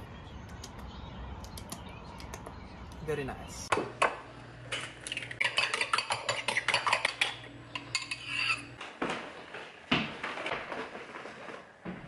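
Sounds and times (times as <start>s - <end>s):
fork beating eggs in bowl: 5.0s - 8.7s.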